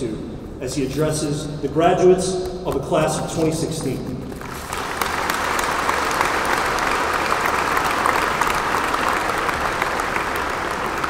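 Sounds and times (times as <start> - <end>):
large audience applauding: 4.3 - 11.0.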